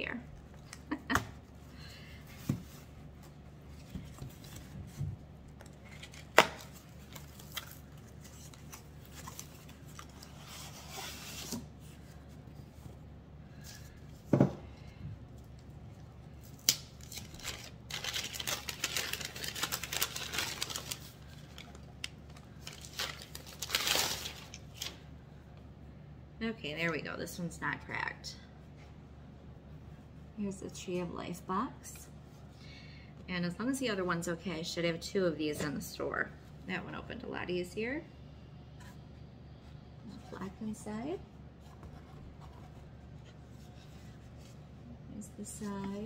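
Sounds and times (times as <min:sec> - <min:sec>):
paper packaging rustling and tearing: 0:05.7 - 0:12.2, 0:16.4 - 0:25.0.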